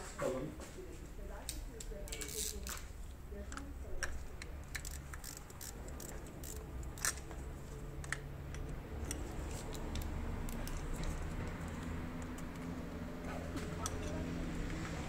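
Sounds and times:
wrench clicking: 1.8s - 2.8s, 3.5s - 7.4s, 8.0s - 12.8s, 13.8s - 14.2s.

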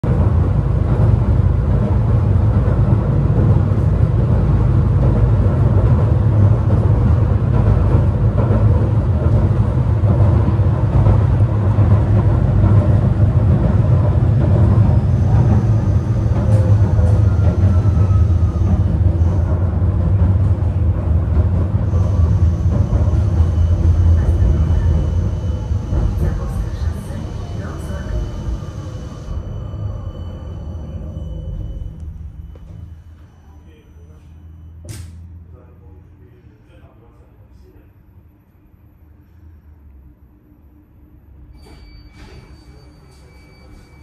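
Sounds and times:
tram deep rumble: 0.0s - 44.0s
faint high whine: 22.0s - 36.6s, 41.4s - 44.0s.

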